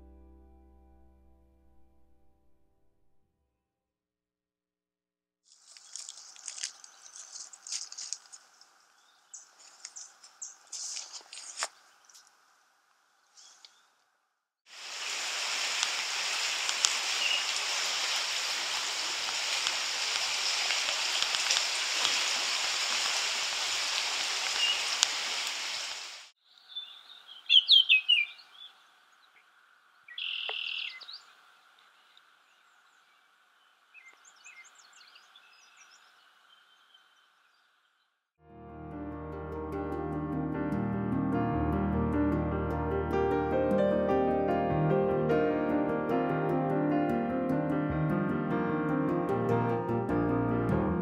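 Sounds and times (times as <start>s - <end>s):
birds chirping: 5.8s - 12.4s, 13.1s - 14.0s, 17.1s - 17.6s, 24.4s - 25.0s, 26.4s - 38.1s
river water rushing over rocks: 14.8s - 26.3s.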